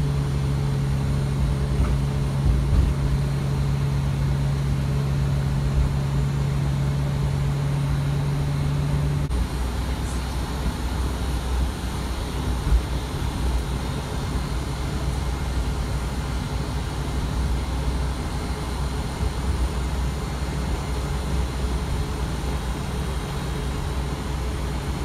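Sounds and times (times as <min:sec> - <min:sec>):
bus engine and road noise: 0:00.0 - 0:25.0.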